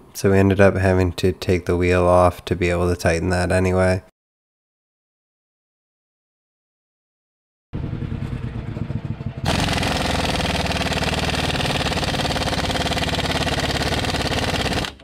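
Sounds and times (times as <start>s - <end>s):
impact wrench hammering: 9.5s - 15.0s.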